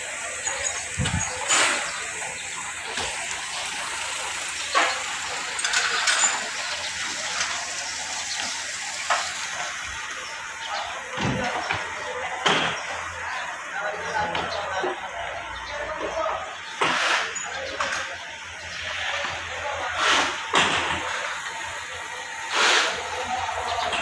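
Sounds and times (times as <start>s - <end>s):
sowing machine hissing: 0.0s - 11.6s, 16.7s - 24.0s.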